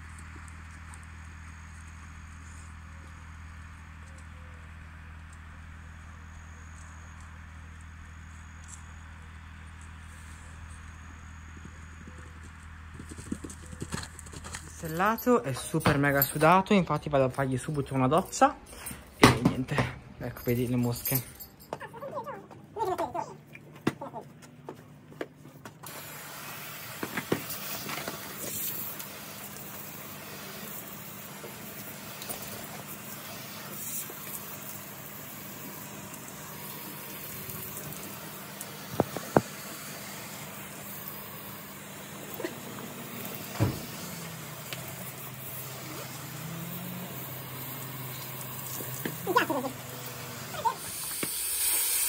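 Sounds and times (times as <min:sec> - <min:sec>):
low mechanical hum: 0:00.0 - 0:52.0
hose spray hissing: 0:25.8 - 0:52.0.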